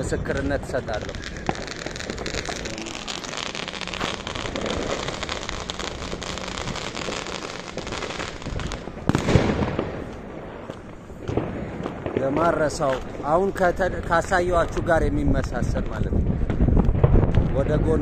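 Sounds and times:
fireworks crackling: 0:00.0 - 0:18.0
firework bang: 0:00.8 - 0:13.1.

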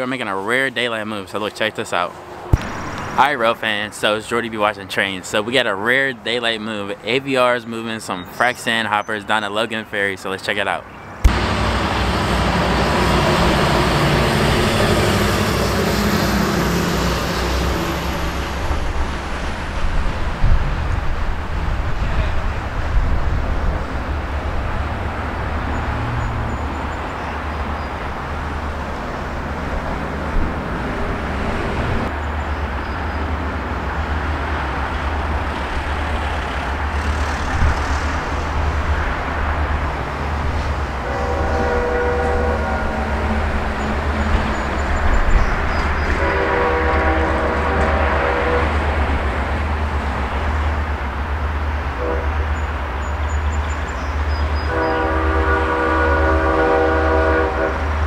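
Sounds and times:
road traffic noise: 0:00.0 - 0:58.0
diesel locomotive rumble: 0:02.1 - 0:04.5, 0:11.2 - 0:58.0
vehicle engine: 0:11.2 - 0:19.2, 0:33.6 - 0:41.8.

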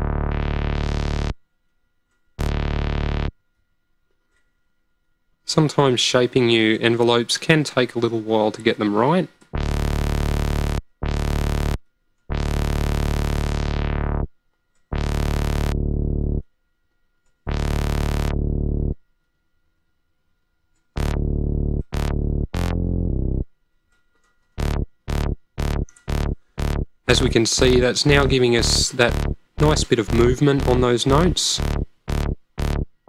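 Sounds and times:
synthesiser bass line: 0:00.0 - 0:01.4, 0:02.4 - 0:03.3, 0:09.5 - 0:14.3, 0:14.9 - 0:16.5, 0:17.5 - 0:19.0, 0:21.0 - 0:23.5, 0:24.6 - 0:33.0.

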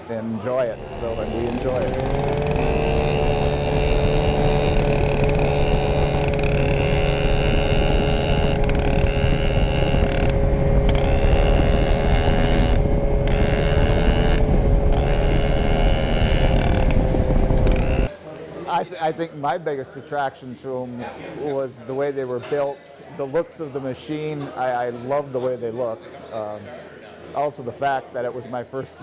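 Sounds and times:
high engine whine: 0:00.6 - 0:18.1
snowmobile engine running: 0:00.6 - 0:18.1.

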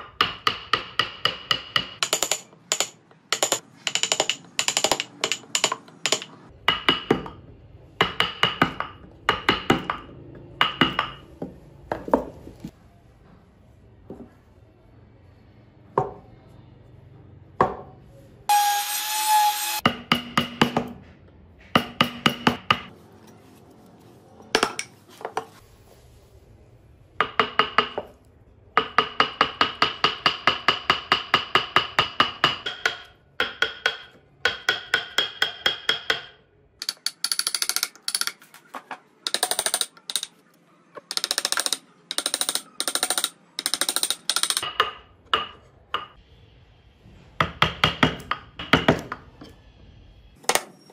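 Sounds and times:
hammer tapping chisel into wood: 0:00.0 - 0:07.4, 0:28.8 - 0:38.4.

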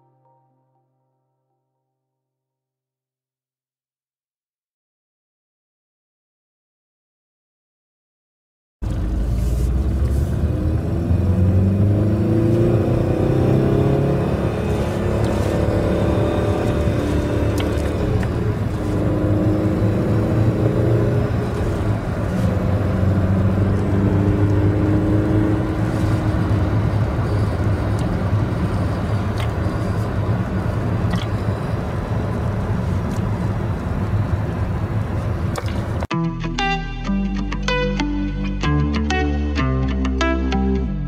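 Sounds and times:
car engine accelerating: 0:08.8 - 0:36.1
road and tyre noise: 0:08.8 - 0:36.1.

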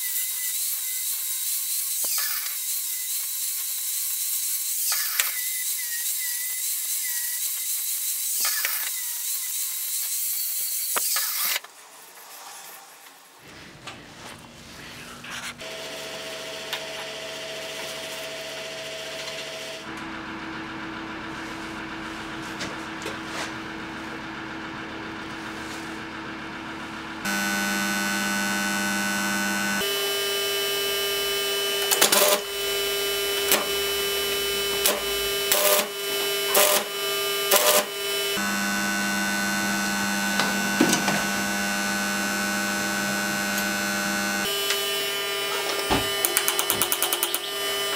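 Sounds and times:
angle grinder cutting steel: 0:00.0 - 0:13.4, 0:27.3 - 0:47.9
steady hum: 0:19.8 - 0:46.3
welding arc crackles: 0:30.6 - 0:44.9.

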